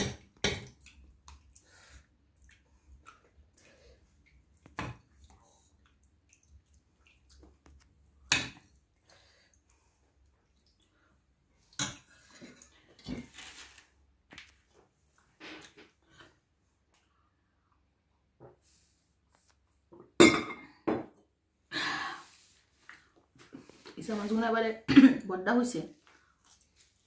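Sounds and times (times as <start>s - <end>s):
wet dripping and sloshing: 0.0s - 13.6s, 26.0s - 27.0s.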